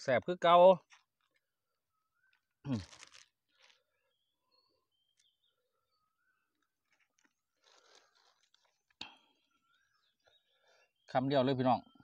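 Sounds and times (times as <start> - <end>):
soft rustle: 6.8 - 9.0.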